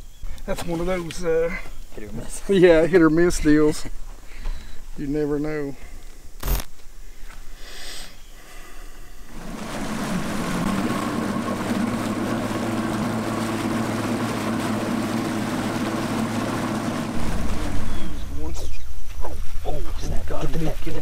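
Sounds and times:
boat motor running: 9.3s - 18.8s.

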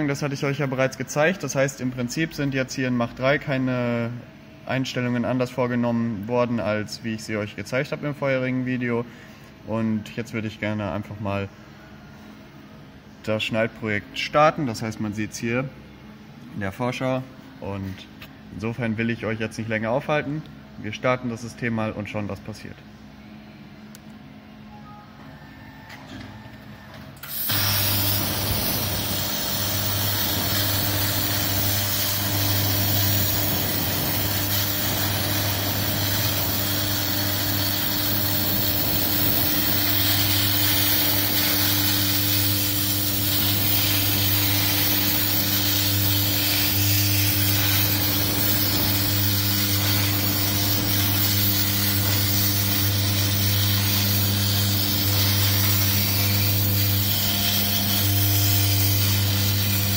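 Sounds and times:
plasma cutter hissing: 27.2s - 59.9s.

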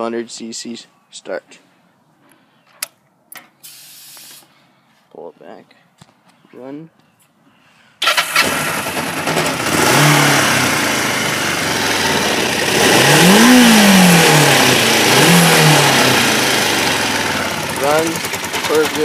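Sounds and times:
motorcycle engine revving: 8.0s - 19.0s.

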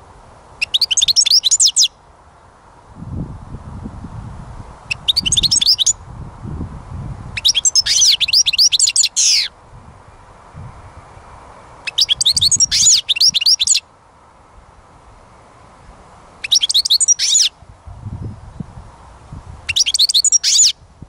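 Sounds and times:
bird twittering: 0.6s - 2.0s, 4.9s - 6.0s, 7.4s - 9.6s, 11.8s - 13.8s, 16.4s - 17.5s, 19.7s - 20.8s.

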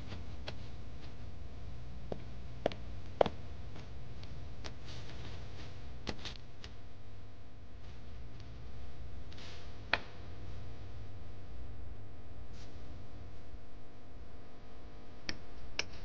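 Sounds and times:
low room hum: 0.0s - 16.0s
paper rustling: 4.6s - 6.7s.

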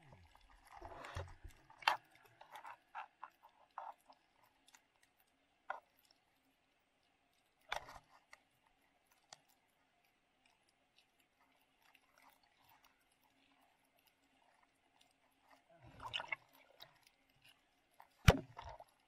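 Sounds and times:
faint underwater clicks: 0.0s - 19.0s.

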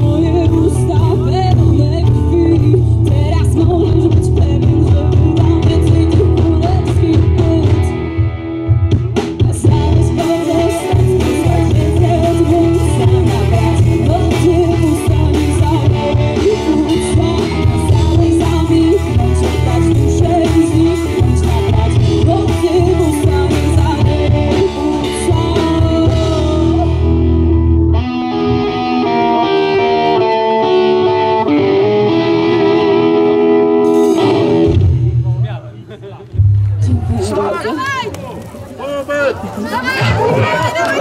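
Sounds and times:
woman singing: 0.0s - 8.2s, 9.2s - 27.1s
bass guitar: 0.0s - 41.0s
drums: 0.0s - 41.0s
electric guitars: 0.0s - 41.0s.

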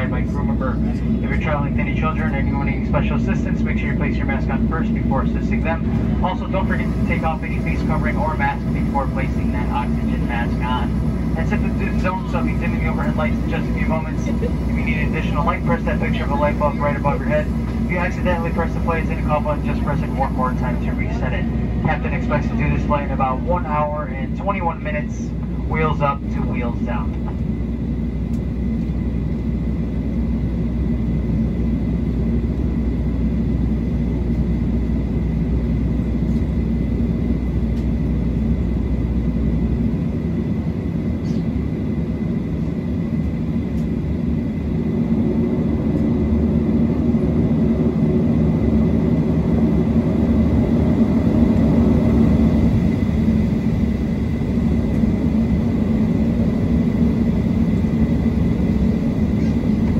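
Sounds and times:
faint high whine: 0.0s - 29.5s
deep rumble: 0.0s - 59.9s
jet engines and air conditioning hum: 0.0s - 59.9s.

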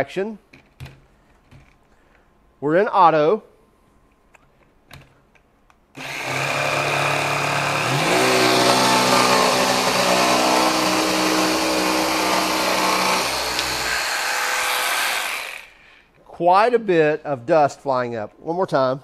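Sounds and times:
jigsaw cutting plywood: 6.0s - 15.7s.

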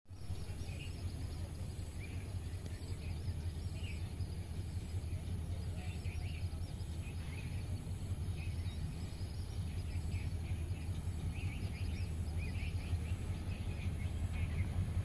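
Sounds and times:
small birds chirping: 0.1s - 15.0s
steady low rumble: 0.1s - 15.0s.

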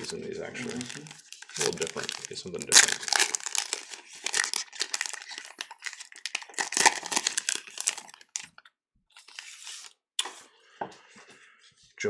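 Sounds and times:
foil wrapper crinkling and tearing: 0.6s - 8.6s.

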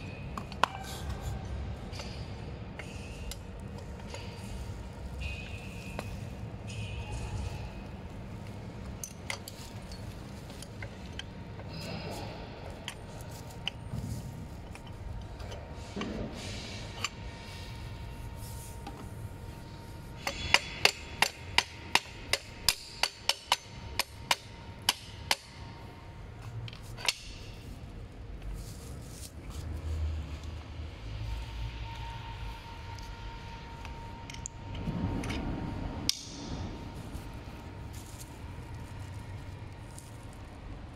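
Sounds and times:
clicks of parts being handled: 0.3s - 12.0s, 26.4s - 27.6s, 33.8s - 36.5s.

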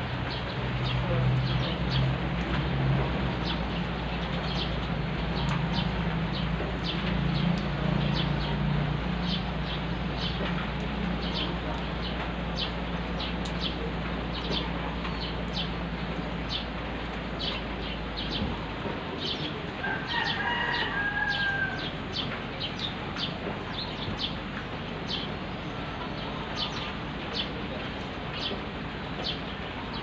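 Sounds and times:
steady rain: 0.0s - 30.0s
rooster crowing: 19.8s - 22.0s.

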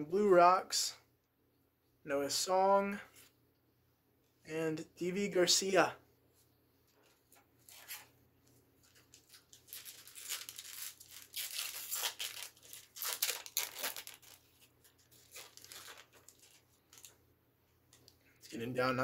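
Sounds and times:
foil wrapper crinkling: 8.8s - 17.2s.

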